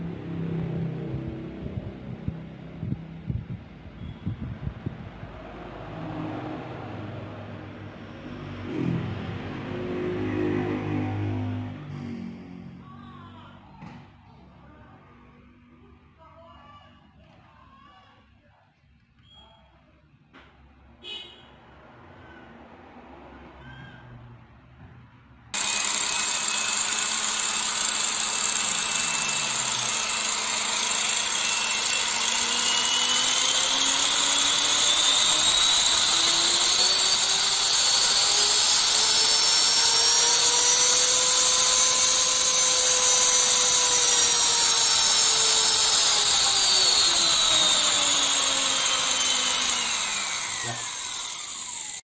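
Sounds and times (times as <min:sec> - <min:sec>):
angle grinder motor whine: 0:25.6 - 0:52.0.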